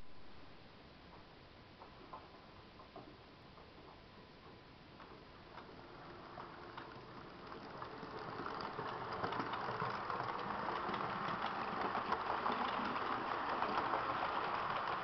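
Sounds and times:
wheels clicking on track: 0:01.8 - 0:15.0
model train running past: 0:05.0 - 0:15.0.

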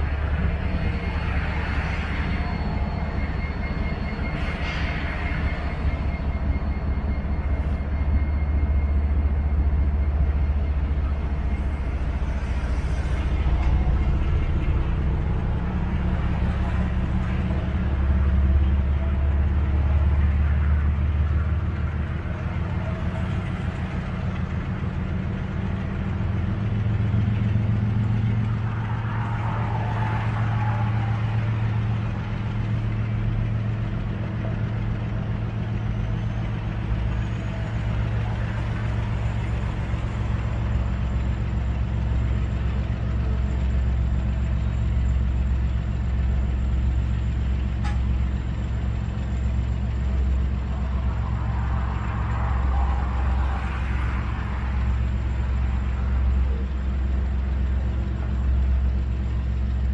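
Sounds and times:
diesel locomotive engines droning: 0:00.0 - 0:59.9.

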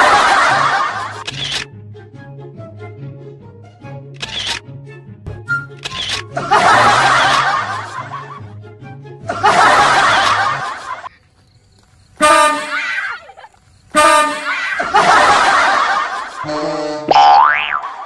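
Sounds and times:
burst of laughter: 0:00.0 - 0:01.2, 0:06.4 - 0:08.4, 0:09.3 - 0:11.1, 0:14.5 - 0:17.1
bus air horn blasts: 0:12.2 - 0:13.0, 0:14.0 - 0:14.8.

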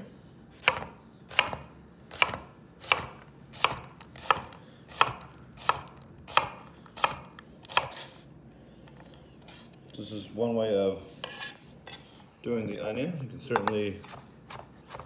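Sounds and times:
knife chopping onion on wood: 0:00.5 - 0:08.2, 0:13.6 - 0:15.0.

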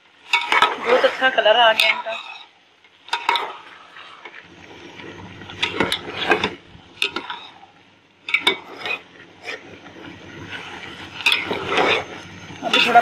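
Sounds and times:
metal spoon stirring rice in pot: 0:00.1 - 0:13.0.

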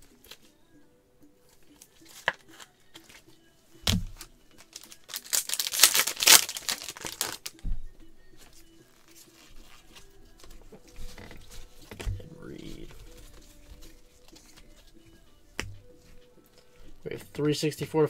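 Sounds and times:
plastic wrapper crinkling and tearing: 0:04.5 - 0:07.6.

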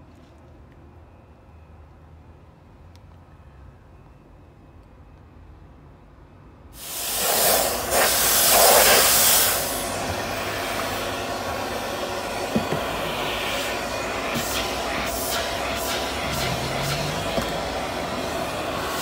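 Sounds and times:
steam hissing from nozzle: 0:06.8 - 0:19.0.

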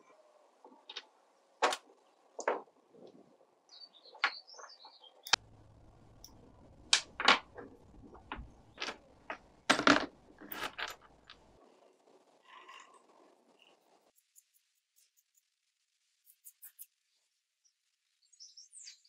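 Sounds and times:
metal parts clinking on wood: 0:08.4 - 0:11.4
metal parts clattering: 0:09.7 - 0:11.4.

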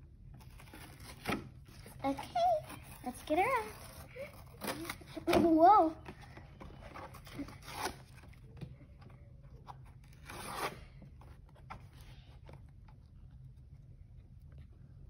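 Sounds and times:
packaging rustling and tearing: 0:00.4 - 0:05.6, 0:06.3 - 0:08.5.

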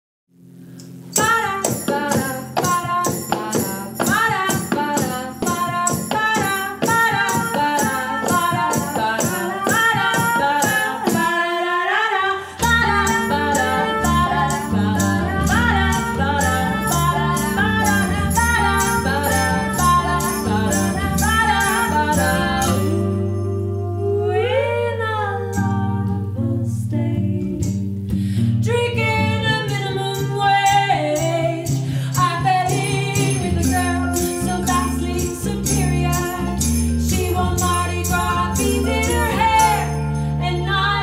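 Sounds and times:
acoustic guitar: 0:00.6 - 0:41.0
jingling tambourine-like beat: 0:01.2 - 0:11.4, 0:12.6 - 0:23.4, 0:29.8 - 0:40.7
woman singing: 0:01.2 - 0:27.8, 0:28.6 - 0:41.0.

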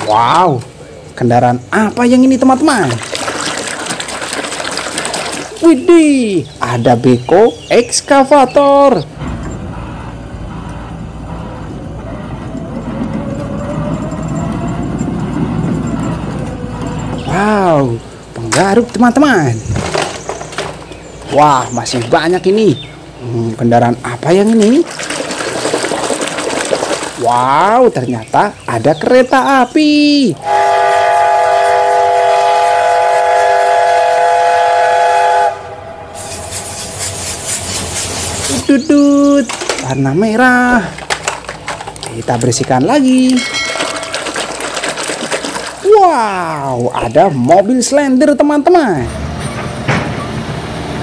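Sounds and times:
heavy engine rumbling: 0:08.3 - 0:24.1, 0:49.0 - 0:51.0
faint rising tone: 0:09.3 - 0:17.3
train whistle chord: 0:30.4 - 0:36.9
brush scrubbing toy: 0:36.3 - 0:38.7, 0:41.0 - 0:45.9.

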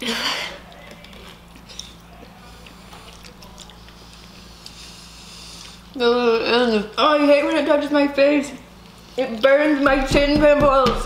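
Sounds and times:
people slurping and chewing noodles: 0:00.0 - 0:07.0.

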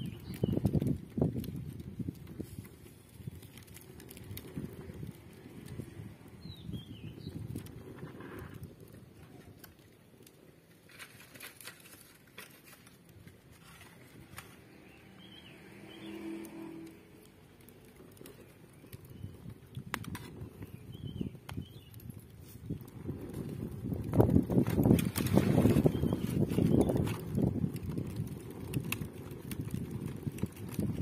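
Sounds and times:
wood fire crackling: 0:00.0 - 0:31.0
bird chirps: 0:14.8 - 0:16.2.

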